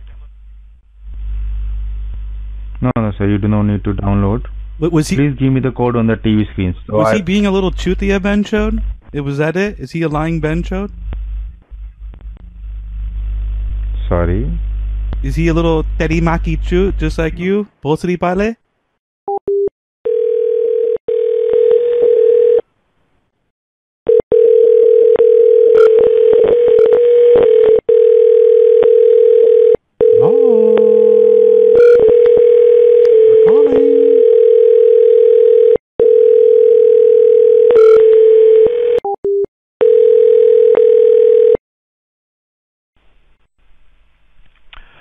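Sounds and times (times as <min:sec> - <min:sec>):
telephone dial tone: 0:19.5 - 0:22.6, 0:24.1 - 0:41.6
brief gliding pitched sound: 0:30.1 - 0:31.7.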